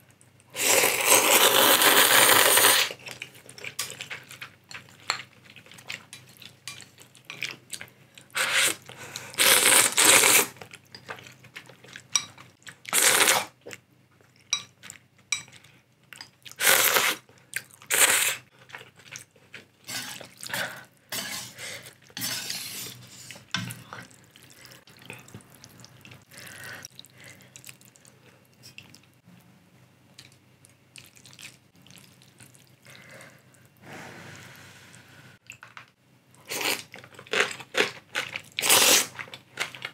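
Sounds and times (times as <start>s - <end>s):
person slurping noodles: 0.6s - 3.0s, 8.4s - 8.8s.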